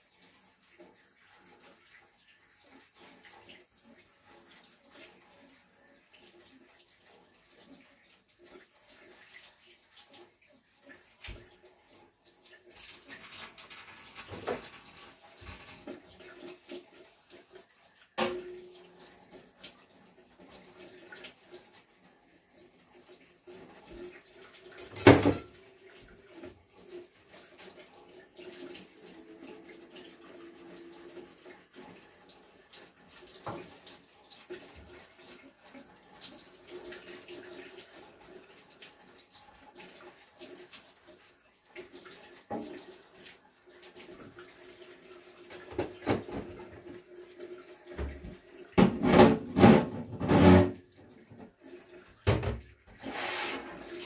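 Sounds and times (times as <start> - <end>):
dishes clattering against sink: 13.2 - 16.2, 24.8 - 25.6, 45.5 - 46.8, 48.0 - 51.5, 52.2 - 53.6.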